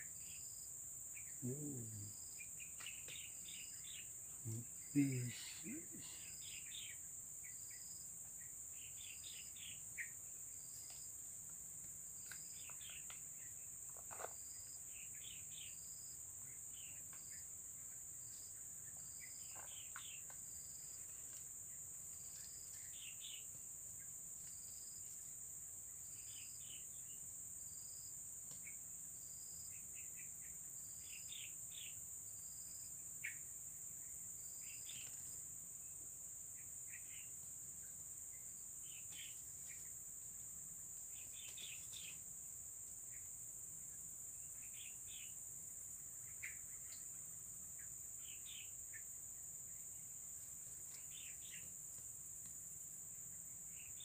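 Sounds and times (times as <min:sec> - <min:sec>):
insects droning: 0:00.0 - 0:54.0
bird chirps: 0:01.1 - 0:11.0, 0:12.2 - 0:13.7, 0:41.1 - 0:42.2
faint ticks: 0:41.4 - 0:42.1, 0:46.4 - 0:47.2, 0:50.8 - 0:53.1.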